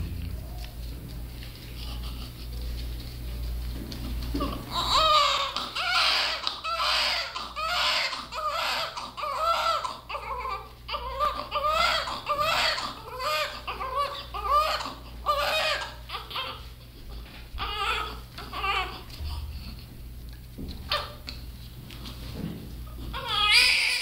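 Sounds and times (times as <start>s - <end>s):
baby crying: 4.4s - 16.7s, 17.6s - 19.1s, 23.1s - 24.0s.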